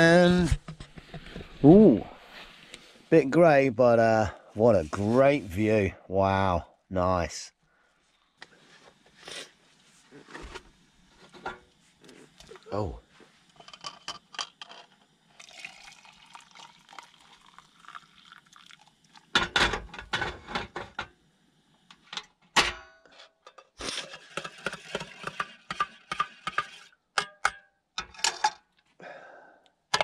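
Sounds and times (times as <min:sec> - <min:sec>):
hot water pouring into mug: 0:14.0 - 0:19.9.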